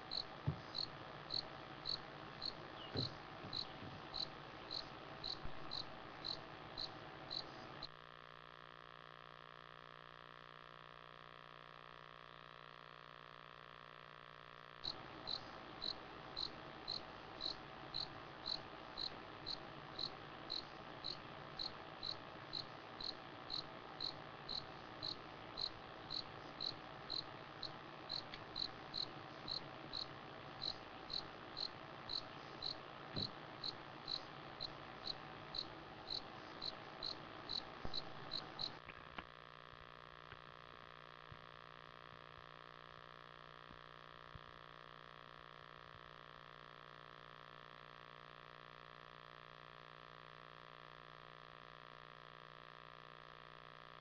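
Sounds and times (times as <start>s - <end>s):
cricket chirping: 0.0s - 7.7s, 14.8s - 38.8s
night bush hiss: 0.0s - 7.8s, 14.9s - 38.8s.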